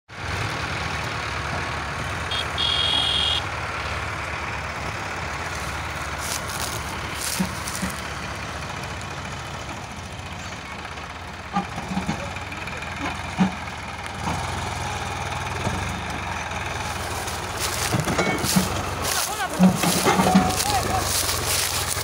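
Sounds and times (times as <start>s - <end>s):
tractor diesel engine running: 0.1s - 22.0s.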